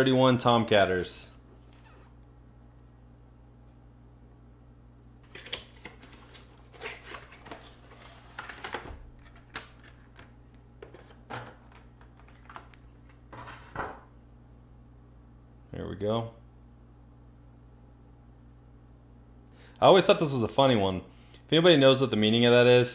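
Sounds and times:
cardboard and plastic handling: 5.3s - 14.0s.

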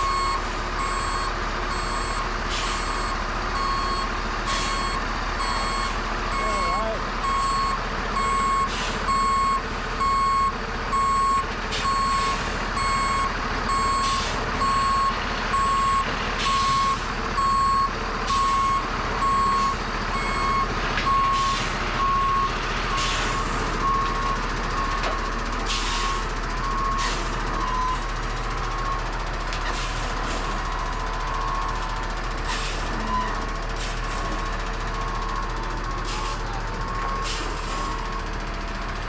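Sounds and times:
reversing alarm beeping: 0.0s - 25.0s, 26.0s - 28.2s
diesel engine running: 0.0s - 39.0s.

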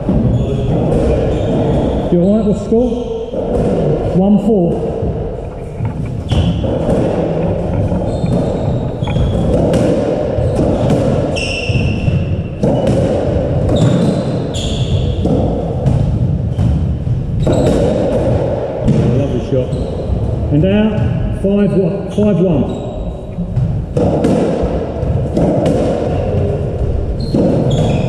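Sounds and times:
shoes squeaking on wooden floor: 0.0s - 4.2s, 4.8s - 12.9s, 13.7s - 15.6s, 16.5s - 18.2s, 19.2s - 21.2s, 22.1s - 24.0s, 26.1s - 28.0s
racket striking ball: 3.3s - 19.2s, 23.2s - 28.0s
ball smacking off walls: 5.9s - 19.1s, 23.6s - 26.4s.

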